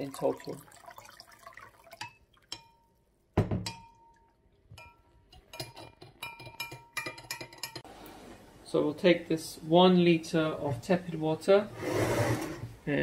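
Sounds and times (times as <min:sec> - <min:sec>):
metal spoon clinking against glass: 0:02.0 - 0:02.9, 0:03.6 - 0:07.8.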